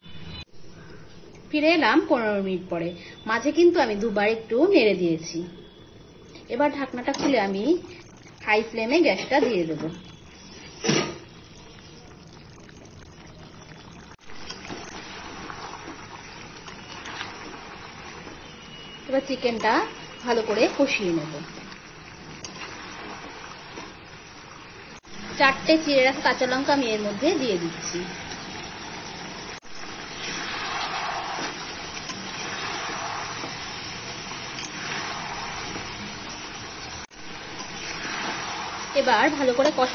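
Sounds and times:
chicken sizzling in a pan: 8.4s - 39.9s
spatula stirring: 30.2s - 39.9s.

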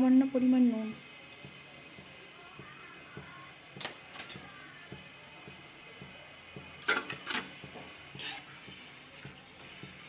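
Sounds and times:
metal spoon tapping metal pan: 3.8s - 4.6s.

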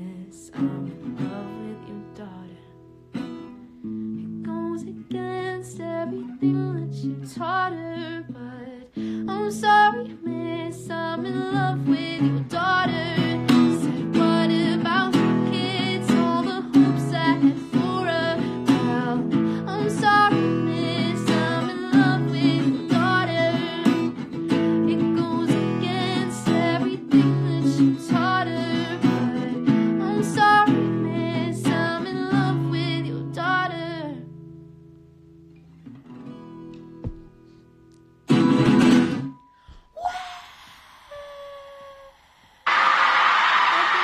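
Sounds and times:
woman singing: 0.0s - 2.9s, 4.2s - 34.4s
strummed acoustic guitar: 0.0s - 39.6s.

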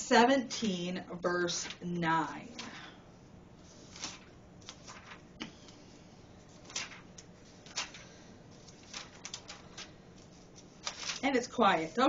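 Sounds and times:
paper pages turning: 3.6s - 5.8s, 6.4s - 12.0s.

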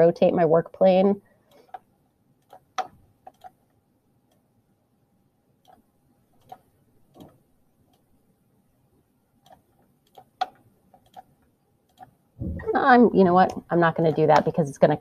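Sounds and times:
computer mouse clicks: 1.5s - 3.7s, 5.6s - 5.8s, 6.4s - 8.1s, 9.4s - 12.2s.

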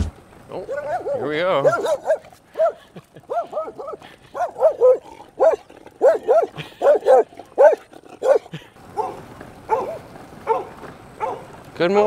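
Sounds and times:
small dog barking: 0.7s - 11.5s.

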